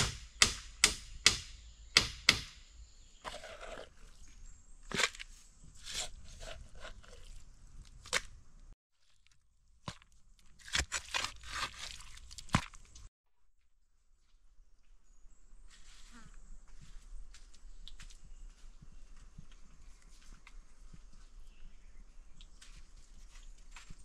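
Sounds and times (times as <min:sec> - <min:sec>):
sharp knocks: 0:00.0 - 0:02.6
crunching and rustling handling: 0:04.9 - 0:13.1.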